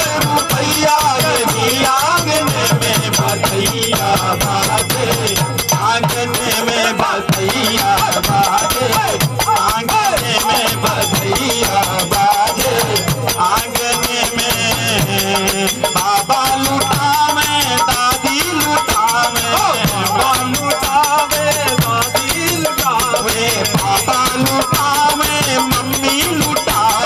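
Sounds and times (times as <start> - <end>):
harmonium melody: 0.0 - 27.0
person singing: 0.0 - 27.0
shaken percussion beat: 0.0 - 27.0.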